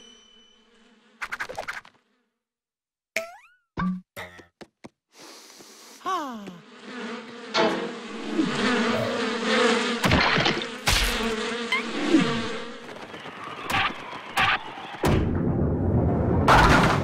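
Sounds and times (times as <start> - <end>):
cartoon bees buzzing: 0.6 - 2.5, 5.2 - 14.3.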